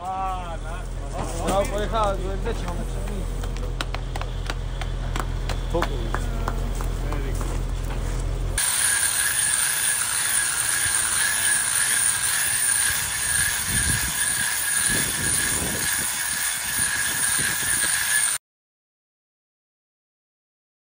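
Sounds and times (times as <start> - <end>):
angle grinder grinding stone: 7.6 - 18.4.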